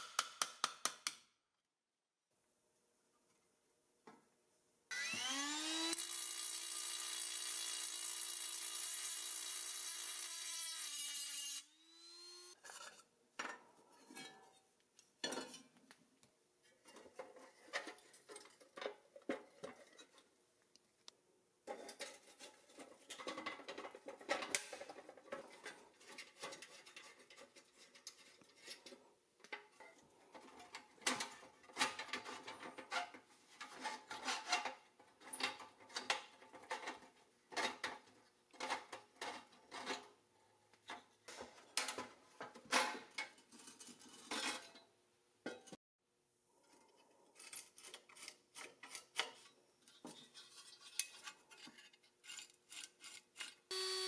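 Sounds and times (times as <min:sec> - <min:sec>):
electric power tool whining: 0:04.9 - 0:12.6, 0:53.7 - 0:54.0
metal toy parts clicking and scraping: 0:47.4 - 0:53.7.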